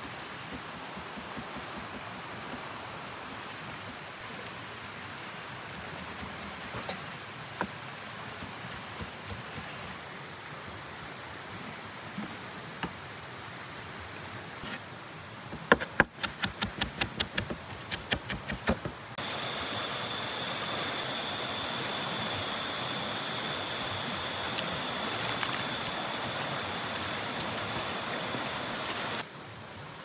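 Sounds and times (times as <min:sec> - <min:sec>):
high-pitched insect whine: 0:19.2 - 0:29.2
river rushing over stones: 0:19.3 - 0:30.0.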